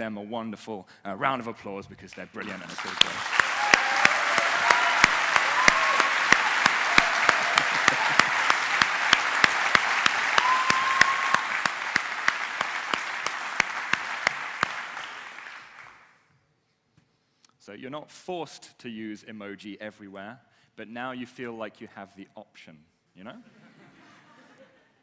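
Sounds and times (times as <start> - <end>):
close hands clapping: 2.1 - 16.1
audience applause: 2.4 - 16.1.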